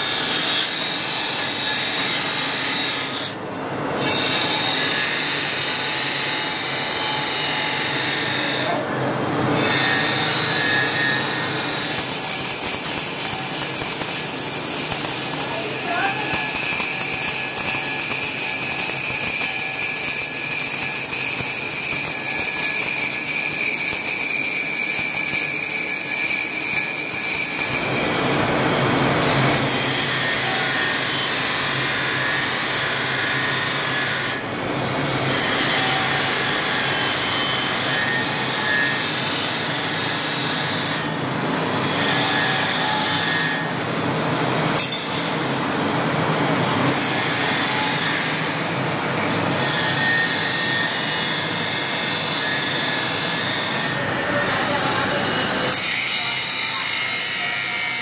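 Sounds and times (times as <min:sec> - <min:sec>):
belt grinder grinding blade: 0:09.7 - 0:28.2.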